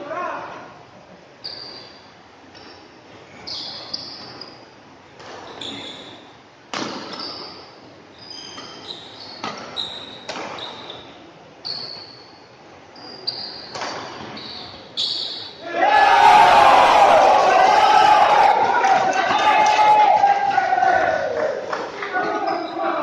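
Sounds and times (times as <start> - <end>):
shoes squeaking on court: 1.4 - 15.6, 22.2 - 23.0
rackets hitting shuttlecock: 6.7 - 7.6, 9.4 - 10.8, 13.6 - 14.4.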